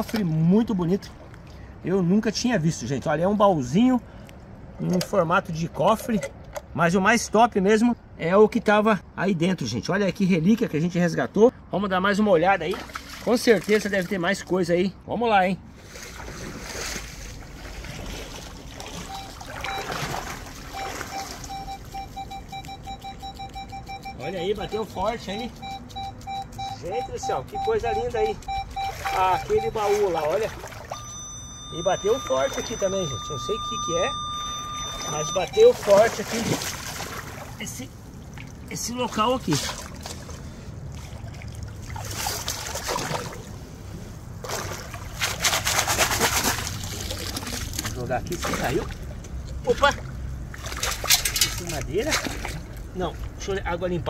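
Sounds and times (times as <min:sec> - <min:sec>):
waders sloshing through stream: 0:00.0 - 0:01.8, 0:12.6 - 0:14.2, 0:15.7 - 0:22.7, 0:27.6 - 0:53.4
metal detector beeps: 0:19.1 - 0:20.1, 0:20.8 - 0:30.3, 0:30.9 - 0:36.5.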